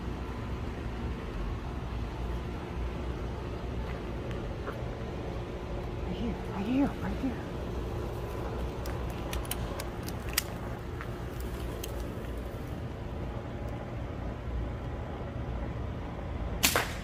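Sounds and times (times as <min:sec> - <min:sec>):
low mechanical motor hum: 0:00.0 - 0:17.0.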